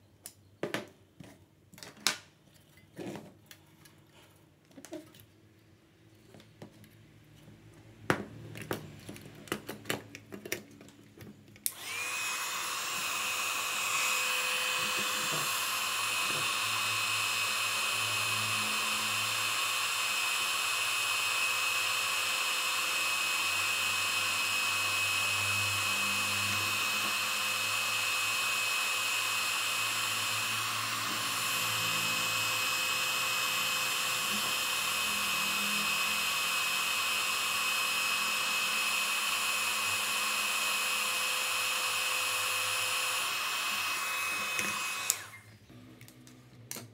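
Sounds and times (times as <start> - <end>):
heat gun whining: 11.6 - 46.9.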